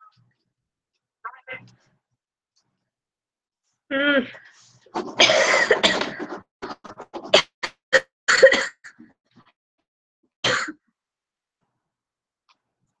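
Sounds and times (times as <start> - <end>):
person coughing: 5.1 - 6.3, 10.4 - 10.8.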